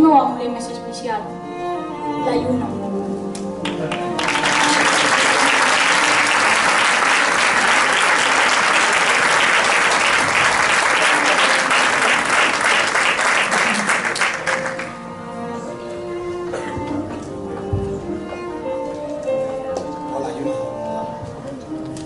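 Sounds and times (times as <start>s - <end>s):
soft music: 0.0s - 22.0s
audience applauding: 3.6s - 15.0s.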